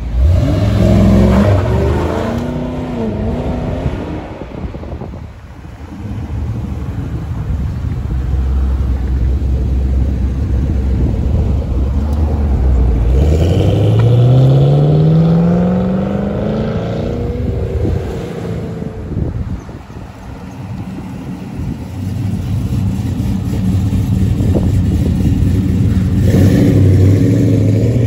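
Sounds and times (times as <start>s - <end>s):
car engine accelerating: 7.8s - 19.4s, 21.6s - 28.0s.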